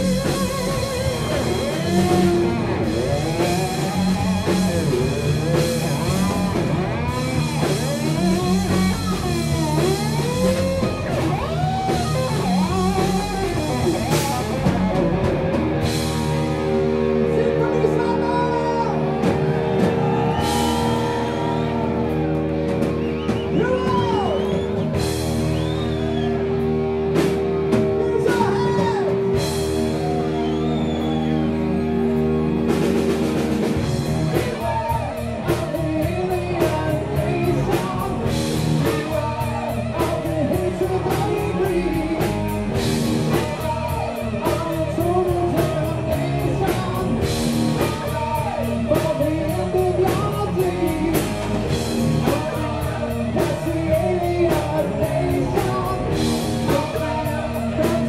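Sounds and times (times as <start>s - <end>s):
lead guitar bending notes: 0.0s - 22.9s
live rock band: 0.0s - 58.0s.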